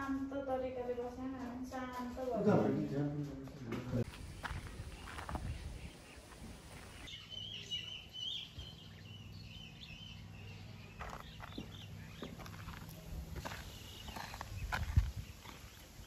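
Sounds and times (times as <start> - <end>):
footsteps: 0.0 - 7.1, 10.9 - 16.0.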